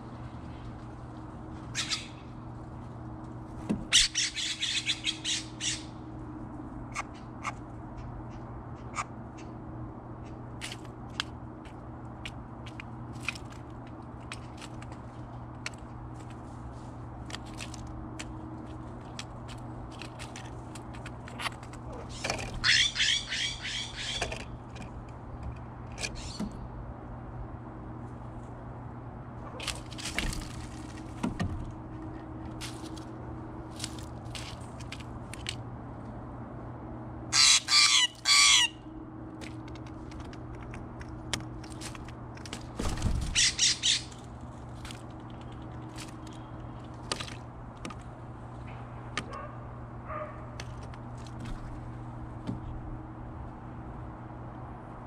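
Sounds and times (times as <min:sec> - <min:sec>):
steady low hum: 0:00.0 - 0:55.0
jays rasping calls: 0:01.7 - 0:02.3, 0:03.8 - 0:06.0, 0:21.9 - 0:24.6, 0:37.3 - 0:38.9, 0:43.2 - 0:44.3.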